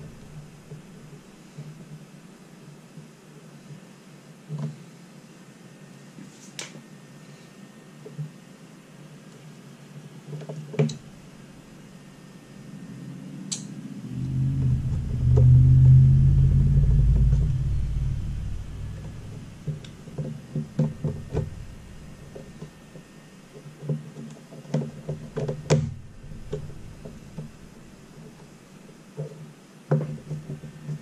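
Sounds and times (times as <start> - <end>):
low rumble: 0.0 - 1.2, 11.0 - 23.0, 25.2 - 28.9.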